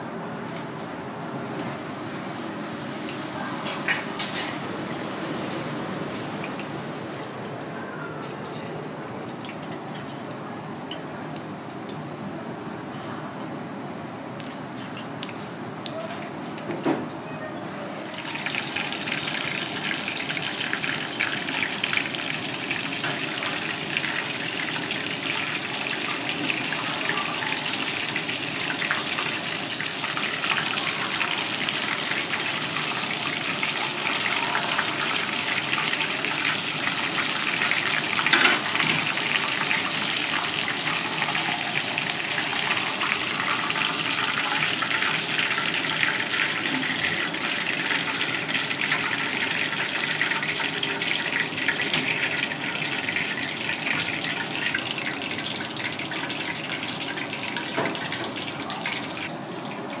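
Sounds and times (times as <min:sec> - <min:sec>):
batter deep-frying in hot oil: 0:17.9 - 1:00.0.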